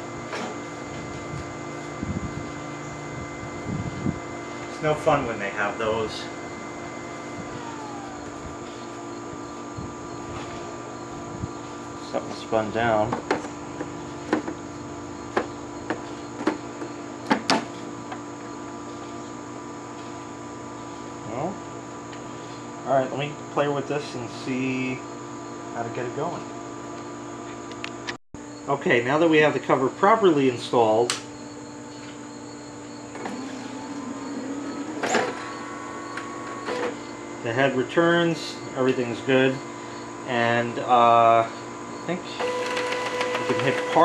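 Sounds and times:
printer carriage motor whine: 0.0 - 19.4, 31.4 - 44.0
printer fan running: 0.0 - 27.5, 28.9 - 44.0
steady hum: 0.0 - 42.5
printer clack: 42.4 - 44.0.

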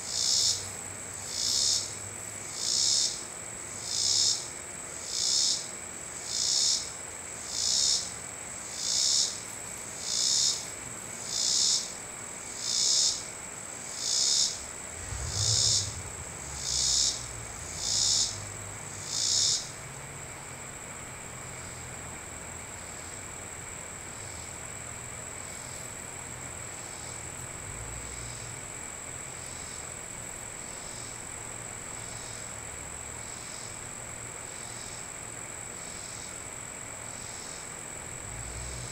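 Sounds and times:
high-pitched insect trill: 0.0 - 20.7, 21.3 - 28.6, 29.2 - 32.6, 33.2 - 38.9
insect pulsed call: 0.0 - 30.0, 30.6 - 35.1, 35.7 - 38.9.

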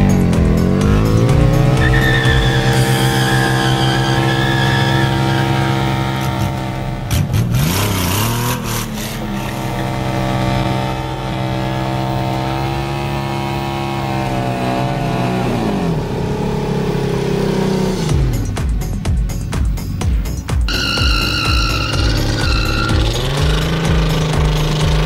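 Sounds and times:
motorcycle engine revving high: 0.0 - 18.5, 20.7 - 25.0.

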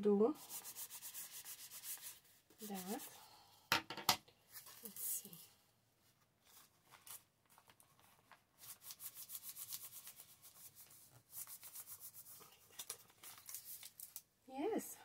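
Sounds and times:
rubbing strokes on paper: 0.3 - 3.3, 8.0 - 14.2.

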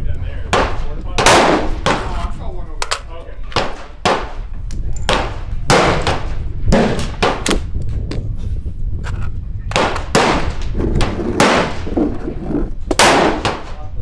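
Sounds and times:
steady low rumble: 0.0 - 14.0
sharp gunshots with echo: 0.5 - 2.2, 3.6 - 4.4, 5.1 - 7.6, 9.7 - 11.9, 12.9 - 13.8.

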